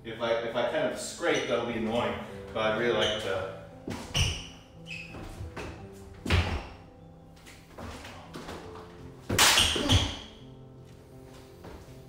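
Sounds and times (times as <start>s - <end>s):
feet stamping on wooden floor: 5.1s - 6.8s, 10.9s - 12.0s
arms striking arms: 9.3s - 10.3s.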